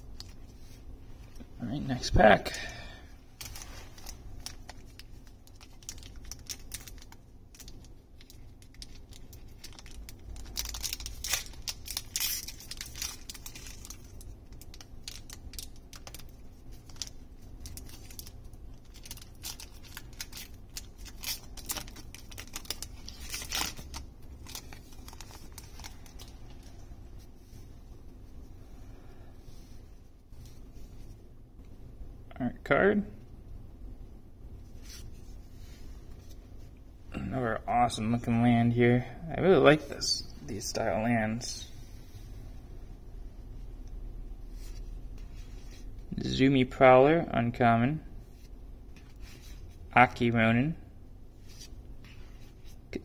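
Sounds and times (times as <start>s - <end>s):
foil wrapper tearing: 3.4s - 26.4s
foil wrapper crinkling: 3.4s - 26.8s.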